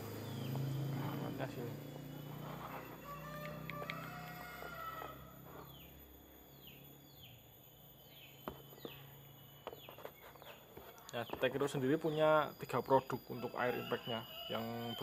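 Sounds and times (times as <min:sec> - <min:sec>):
bird chirping faintly: 0:00.0 - 0:04.3.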